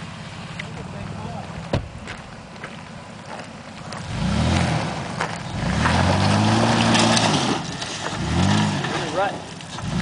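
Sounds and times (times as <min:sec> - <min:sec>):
truck engine revving: 0:03.9 - 0:10.0.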